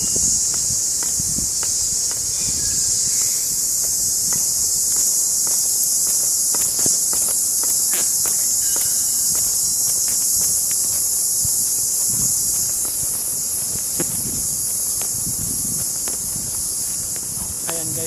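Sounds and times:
footsteps on path: 0.0 - 18.0
insects droning: 0.0 - 18.0.

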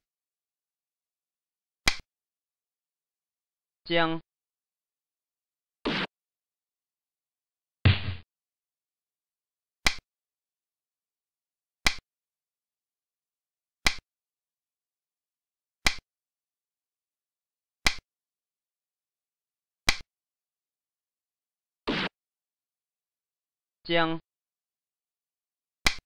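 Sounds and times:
game piece clicking on board: 9.8 - 10.0, 11.8 - 12.0, 13.8 - 14.0, 15.8 - 16.0, 17.8 - 18.0.

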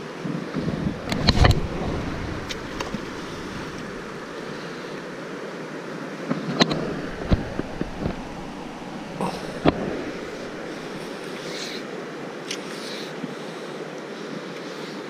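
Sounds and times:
flowing river water: 0.0 - 15.0
wind on microphone: 0.2 - 4.6, 6.6 - 11.2
sharp clicks and knocks: 1.0 - 1.7, 6.6 - 8.8.

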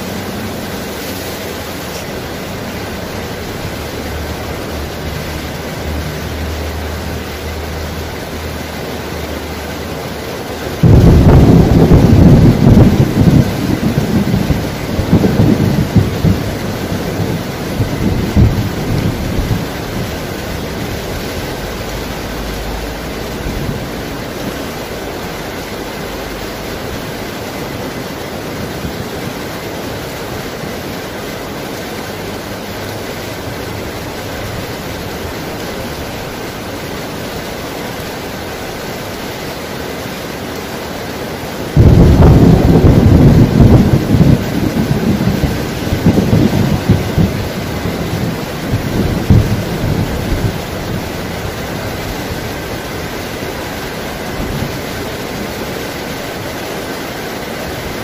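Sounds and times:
thunder rumbling: 0.0 - 31.6, 41.5 - 58.0
heavy rain pouring: 0.0 - 58.0
loud thunderclap: 10.8 - 21.9, 41.8 - 52.2.

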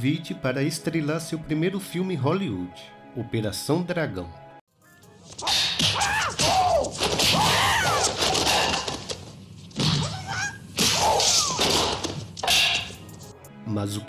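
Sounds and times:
sticks cracking against bodies: 5.3 - 13.1
shouted battle cries: 5.4 - 8.9.

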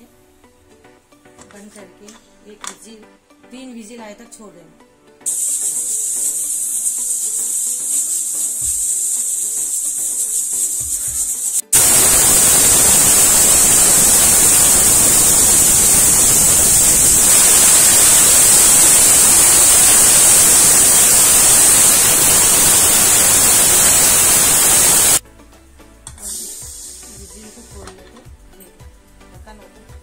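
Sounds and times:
pressure cooker steam hissing: 5.3 - 25.2, 26.2 - 27.7.

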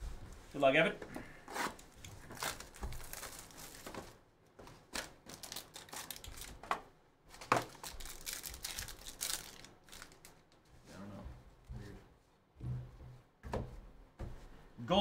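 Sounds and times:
plastic wrapping crinkling and tearing: 1.5 - 10.6.

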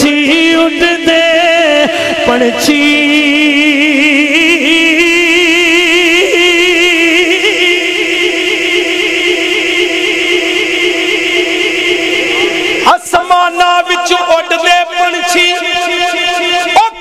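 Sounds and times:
man singing held note: 1.7 - 17.0.

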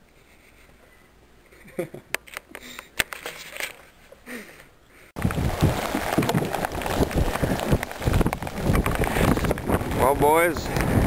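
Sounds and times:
gusty wind buffeting microphone: 5.2 - 11.0.

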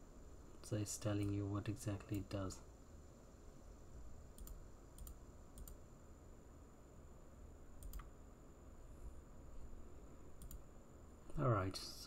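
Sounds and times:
low steady hum: 0.0 - 12.0
computer mouse clicks: 4.3 - 5.8, 7.8 - 8.1, 10.4 - 10.6.

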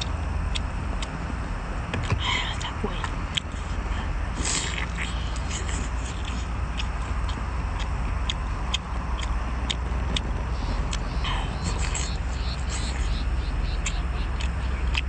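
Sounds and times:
steady low rumble: 0.0 - 15.0
mouth noises: 2.2 - 15.0.

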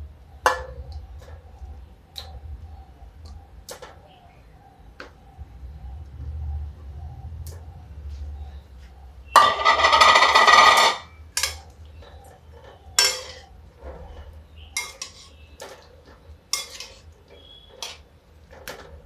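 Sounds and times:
metal ladle scraping a pan: 9.4 - 11.6, 12.6 - 15.9, 16.5 - 18.0.

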